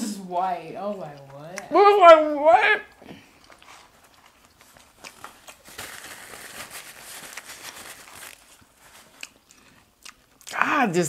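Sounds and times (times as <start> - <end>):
paper wrapper crinkling: 3.5 - 9.7.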